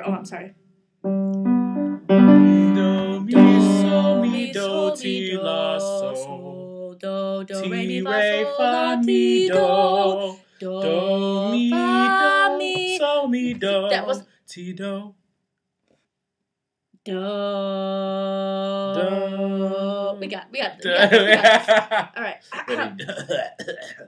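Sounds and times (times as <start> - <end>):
woman and man singing a cappella: 2.6 - 14.2, 17.1 - 21.7, 22.6 - 22.9.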